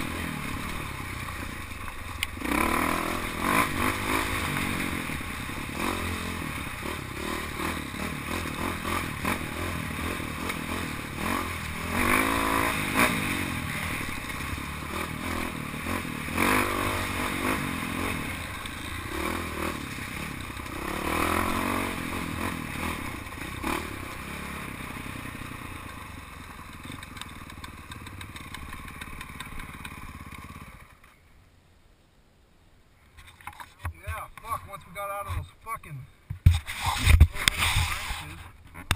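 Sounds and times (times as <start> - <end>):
dirt bike engine revving: 0.0 - 31.0.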